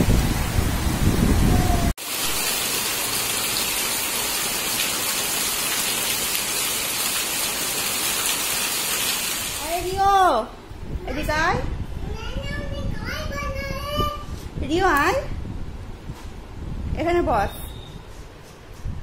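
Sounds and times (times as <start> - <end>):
heavy rain falling: 0.0 - 10.0.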